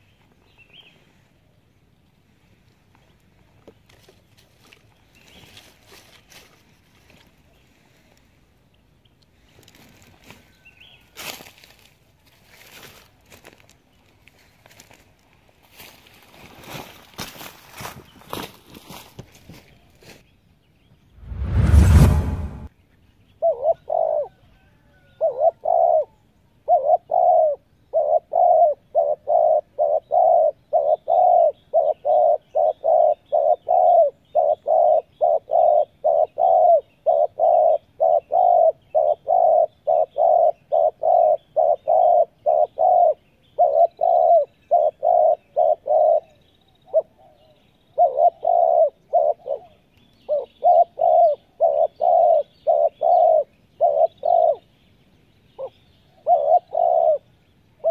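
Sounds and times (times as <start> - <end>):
dove cooing: 23.4 - 47.4, 48.0 - 54.6, 55.6 - 57.2
small birds chirping: 25.1 - 57.9.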